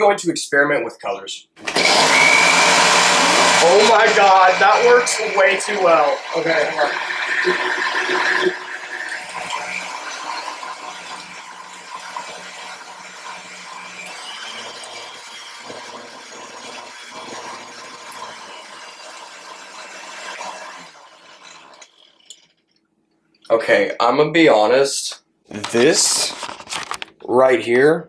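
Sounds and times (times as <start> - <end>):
blender motor running: 1.6 - 22.4.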